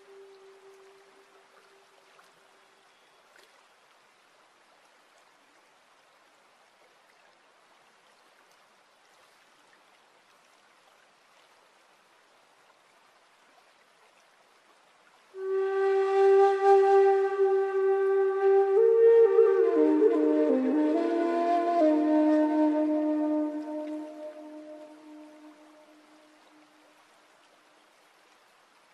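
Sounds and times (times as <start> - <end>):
faint trickle of running water: 0.0 - 28.9
loud flute note: 15.4 - 26.2
held low musical note: 15.4 - 26.4.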